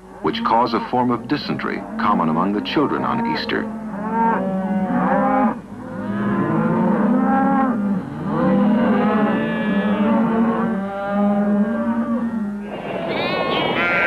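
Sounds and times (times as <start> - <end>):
cattle mooing: 0.1 - 14.0.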